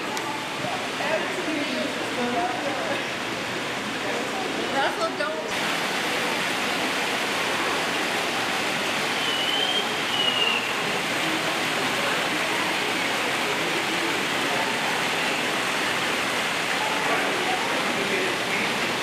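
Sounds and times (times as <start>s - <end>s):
rushing water: 0.0s - 19.0s
high whistle-like squeak: 9.2s - 10.7s.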